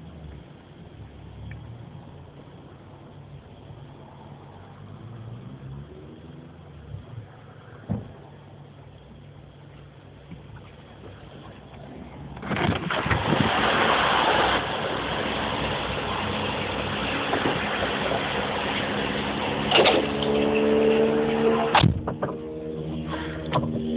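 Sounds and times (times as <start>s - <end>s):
fuel rushing into tank: 11.0s - 21.8s.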